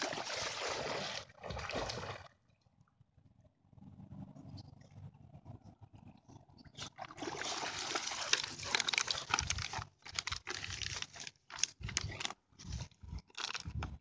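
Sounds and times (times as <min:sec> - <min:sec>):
dog splashing in water: 0:00.0 - 0:02.3, 0:07.0 - 0:09.2
dog chewing crinkling wrapper: 0:07.8 - 0:14.0.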